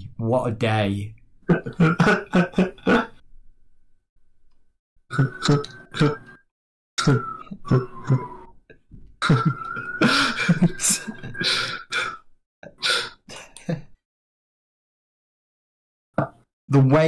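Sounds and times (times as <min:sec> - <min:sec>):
person coughing: 0:01.5 - 0:03.1, 0:07.0 - 0:08.2, 0:09.2 - 0:10.8, 0:11.4 - 0:13.8.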